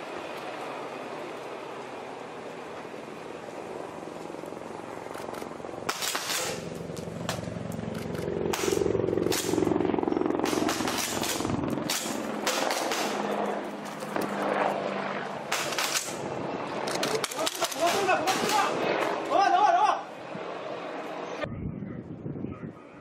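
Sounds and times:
engine-like hum: 0.0s - 21.6s.

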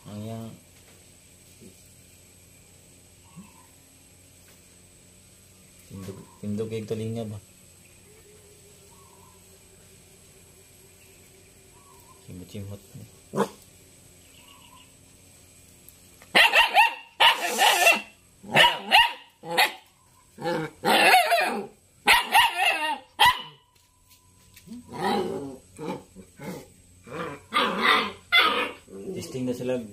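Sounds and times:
puppy barking and growling: 13.3s - 13.6s, 16.3s - 23.7s, 24.7s - 29.6s.

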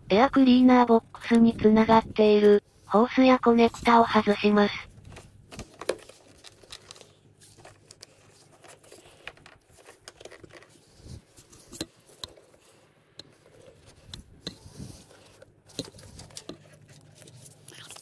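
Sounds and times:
gloved hands rustling: 3.9s - 18.0s.

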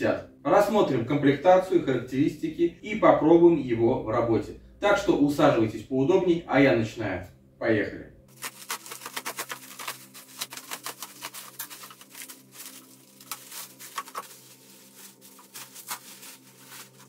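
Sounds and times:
plastic wrap crackling: 8.3s - 17.0s.

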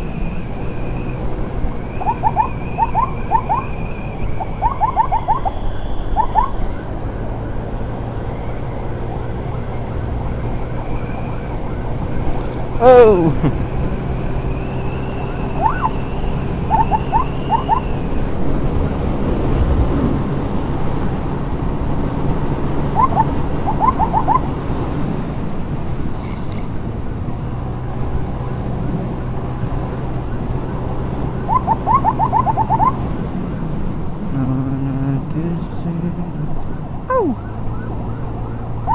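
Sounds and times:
siren chirps: 0.0s - 19.0s, 22.8s - 24.6s, 29.1s - 33.7s, 35.6s - 38.9s
road and wind noise: 0.0s - 38.9s.

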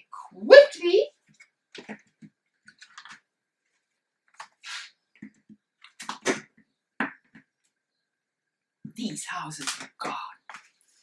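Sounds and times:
cardboard cards rustling and tapping: 1.2s - 7.8s, 9.6s - 10.8s.

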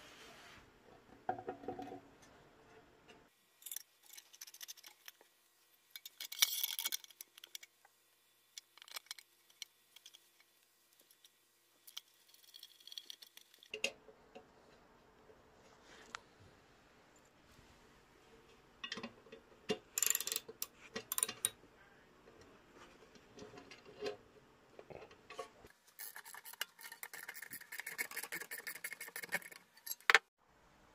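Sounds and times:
metallic clicks and scrapes: 3.1s - 5.3s, 5.9s - 14.0s, 18.8s - 21.6s, 22.3s - 30.3s.

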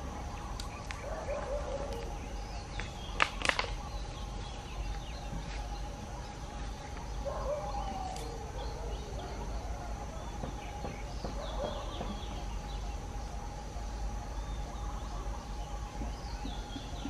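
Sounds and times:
steady hum: 0.0s - 17.0s
wavering animal calls: 0.0s - 17.0s
sharp clicks: 0.5s - 4.0s.

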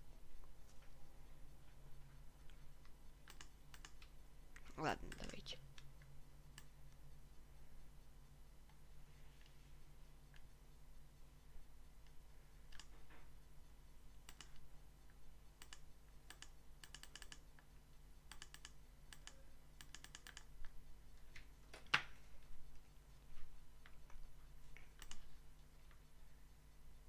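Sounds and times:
faint low hum: 0.0s - 27.0s
mouse clicks: 2.5s - 5.9s, 12.0s - 13.0s, 14.2s - 17.7s, 18.3s - 20.8s, 23.9s - 26.0s
keyboard keystrokes: 18.3s - 20.5s, 25.0s - 25.3s.

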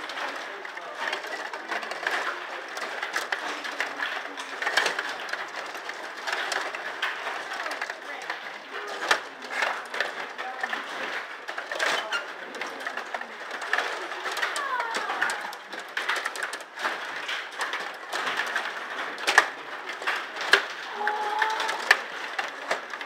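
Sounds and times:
plastic players striking puck: 0.0s - 23.0s
table hockey rods clicking: 0.0s - 23.0s.

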